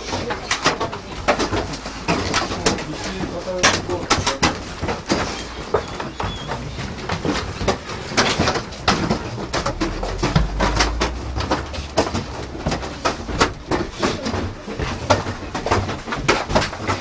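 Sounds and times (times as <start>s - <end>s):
low rumble: 8.8s - 14.1s.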